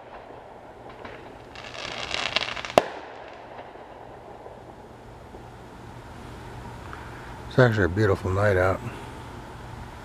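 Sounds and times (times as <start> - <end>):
fireworks bang: 0.0 - 5.5
fireworks crackling: 0.0 - 10.0.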